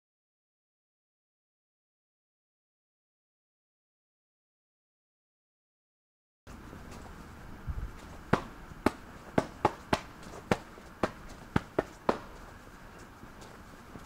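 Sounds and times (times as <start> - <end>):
steady hiss: 6.5 - 14.0.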